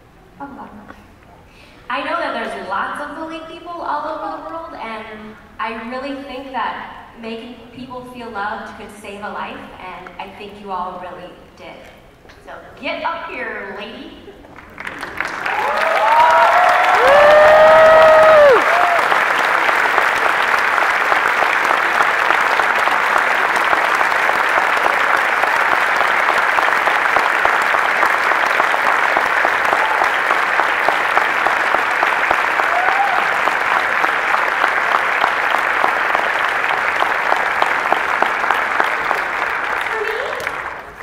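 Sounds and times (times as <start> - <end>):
large audience applauding: 14.4 - 41.0
hands clapping close by: 14.6 - 40.9.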